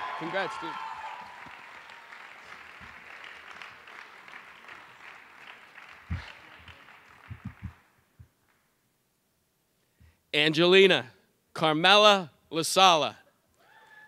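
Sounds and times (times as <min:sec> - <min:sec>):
audience applause: 0:00.0 - 0:07.9
low thumps: 0:07.3 - 0:08.3.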